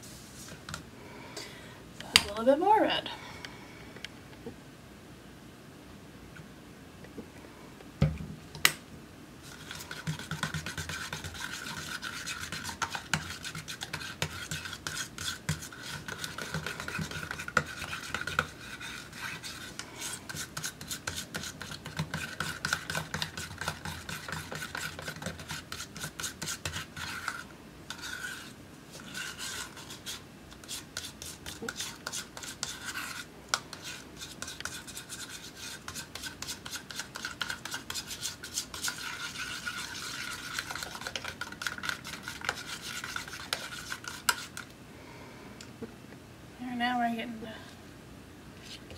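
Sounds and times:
knife scraping paint in cup: 9.5s - 44.7s.

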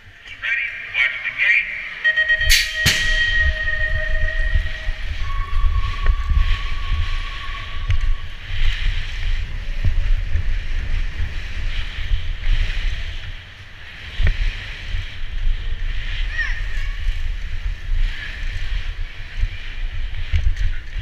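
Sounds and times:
heavy low rumble: 0.0s - 18.1s
long electronic tone: 1.8s - 8.4s
wind buffeting camera: 2.1s - 21.0s.

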